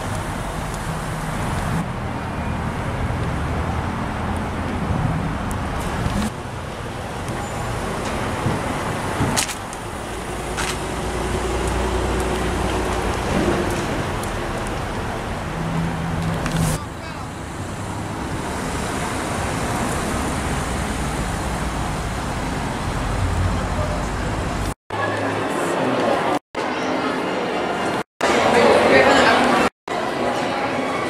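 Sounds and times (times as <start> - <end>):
traffic engine and road rumble: 0.0 - 24.8.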